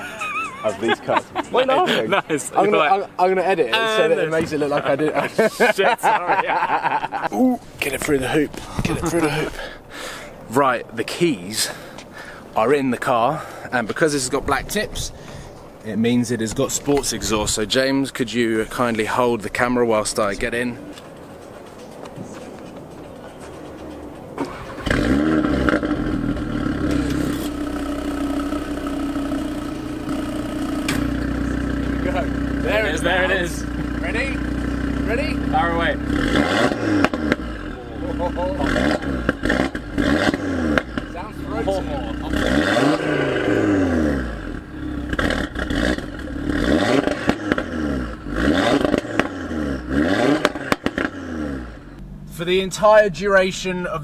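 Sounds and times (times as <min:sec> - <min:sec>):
car engine starting and idling: 0:24.4 - 0:54.0
exhaust pops and cracks: 0:30.8 - 0:31.3, 0:36.6 - 0:37.5, 0:38.8 - 0:41.2, 0:45.1 - 0:47.8, 0:48.6 - 0:49.4, 0:50.2 - 0:51.2.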